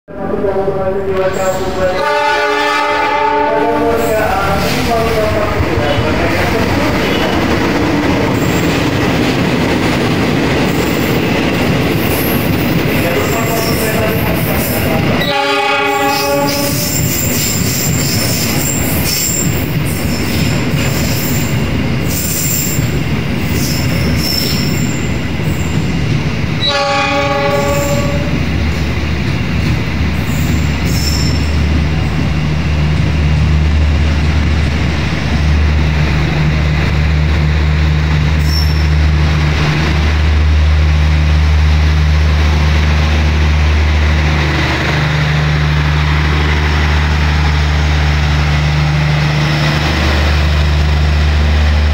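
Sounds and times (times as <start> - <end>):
train horn blasts: 1.8 - 4.1, 15.2 - 17.0, 26.6 - 28.4
train wheels squealing and rattling: 6.7 - 15.3, 15.9 - 26.8, 27.4 - 28.8, 29.6 - 33.2, 38.3 - 39.2.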